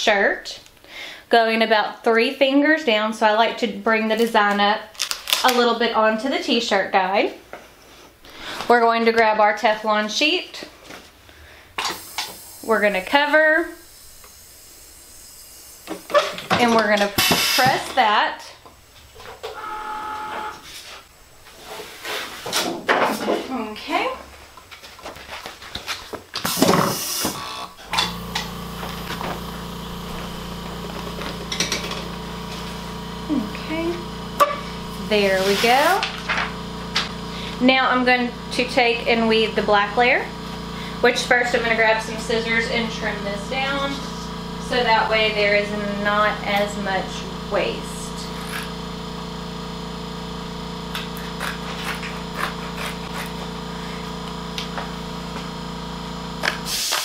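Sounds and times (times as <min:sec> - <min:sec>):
steady machine hum: 0:08.0 - 0:21.8, 0:26.5 - 0:57.0
heat press opening rush: 0:26.4 - 0:33.3
scissors snipping vinyl: 0:50.9 - 0:53.4.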